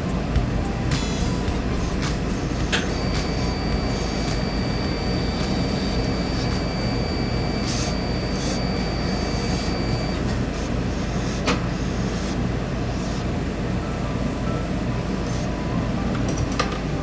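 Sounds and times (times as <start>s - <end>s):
low machine hum: 0.0s - 17.0s
steam iron hissing: 0.9s - 13.3s.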